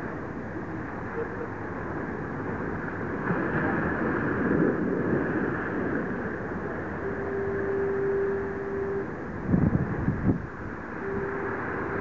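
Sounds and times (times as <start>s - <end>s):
wind buffeting microphone: 2.0s - 12.0s
steady single-pitched tone: 6.5s - 12.0s.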